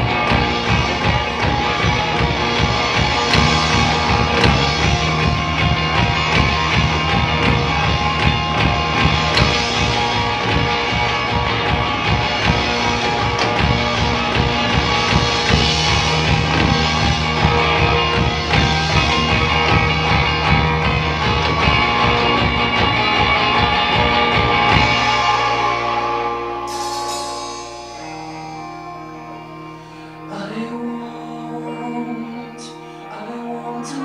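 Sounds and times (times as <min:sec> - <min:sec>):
rhythmic bass line: 0:00.0 - 0:29.8
rock band playing: 0:00.0 - 0:34.0.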